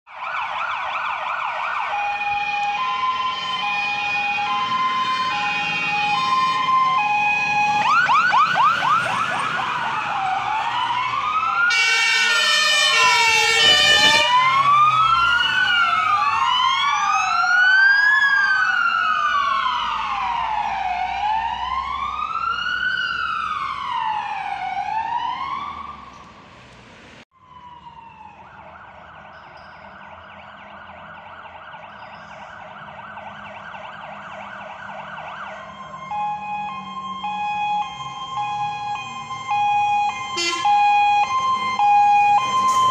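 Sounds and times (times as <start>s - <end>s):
yelping siren: 0.1s - 26.0s, 27.4s - 42.9s
two-tone fire engine siren: 0.1s - 26.1s, 27.3s - 42.9s
wailing sirens: 0.1s - 26.5s, 27.3s - 42.9s
fire engine horn blast: 11.7s - 14.6s, 40.3s - 41.1s.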